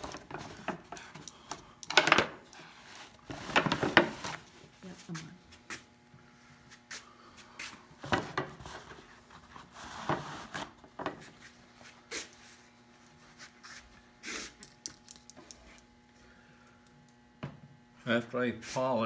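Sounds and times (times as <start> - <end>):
objects knocking and clicking: 0.0 - 2.4.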